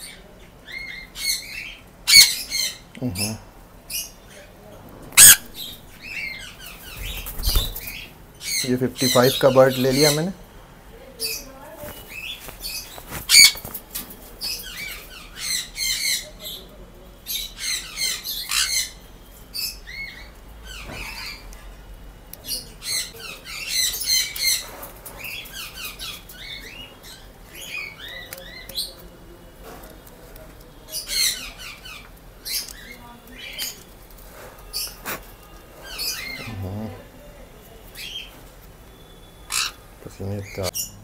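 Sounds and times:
parrots squawking: 0.0 - 4.2, 5.2 - 10.4, 11.2 - 13.8, 17.4 - 19.1, 35.8 - 37.2, 39.4 - 40.9.

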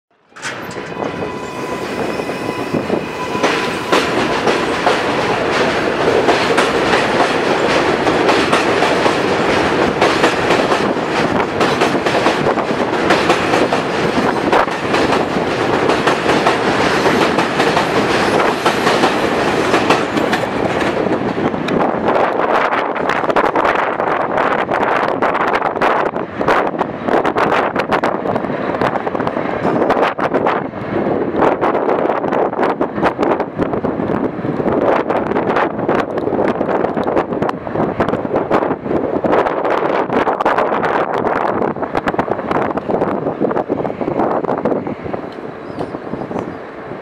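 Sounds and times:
train wheels rumbling on rails: 0.1 - 47.0
steady high tone: 0.4 - 6.1
wheels clicking over rail joints: 3.4 - 22.4.

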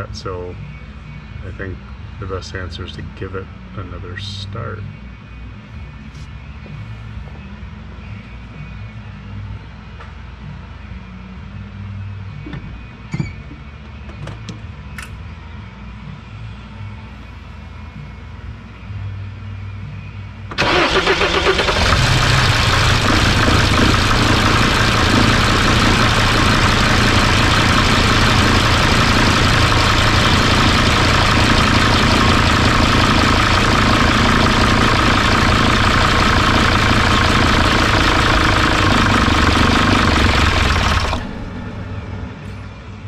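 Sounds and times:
starter motor cranking: 20.5 - 41.3
diesel engine idling: 20.6 - 43.0.

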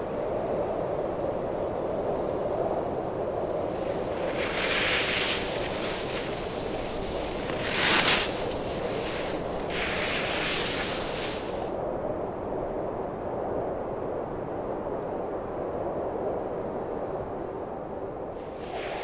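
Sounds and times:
wind rumble: 0.0 - 19.0
skis scraping across snow: 3.4 - 11.8, 18.4 - 19.0.

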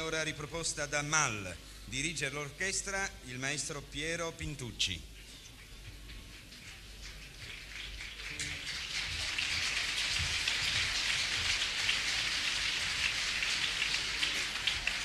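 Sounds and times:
audience applauding: 5.9 - 15.0.

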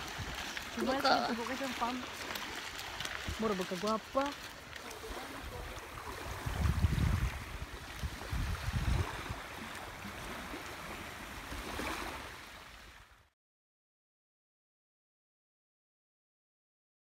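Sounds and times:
wind buffeting microphone: 0.0 - 11.9
calm sea washing ashore: 0.0 - 13.4.

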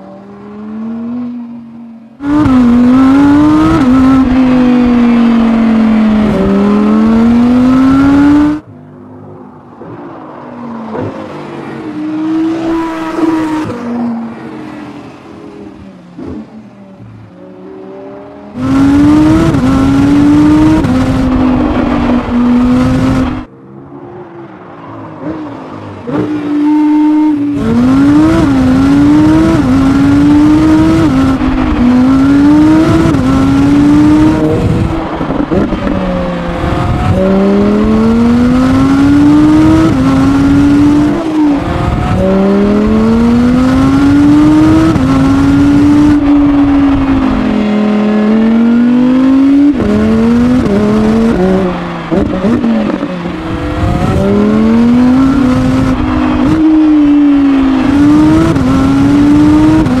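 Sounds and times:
race car engine revving: 2.0 - 8.7, 17.2 - 23.5, 25.2 - 60.0.

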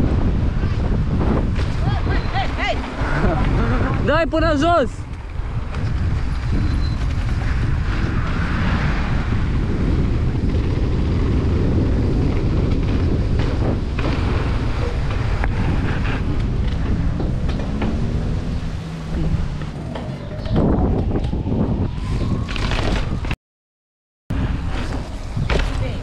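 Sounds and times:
wind rushing over microphone: 0.0 - 23.4, 24.3 - 26.0
bike tyres rumbling on dirt: 4.9 - 23.4, 24.3 - 26.0
bike knocks and rattles: 10.3 - 18.1, 24.7 - 26.0.

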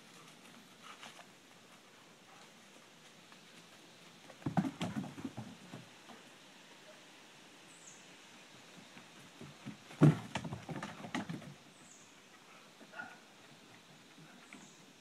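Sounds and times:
bump on floor: 9.9 - 11.4.

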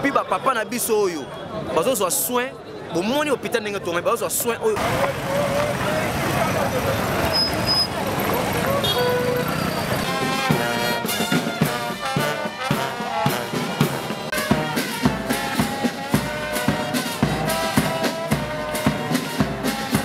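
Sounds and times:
brass band playing a march: 8.8 - 20.0
steady bass drum beat: 10.0 - 20.0.

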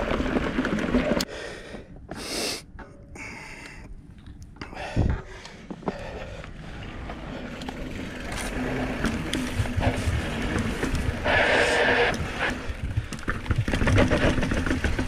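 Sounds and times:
bike tyres rolling on stone: 0.0 - 1.3, 5.2 - 15.0
bike clicks and rattles: 0.0 - 15.0
wheels thumping over bumps: 7.1 - 15.0.

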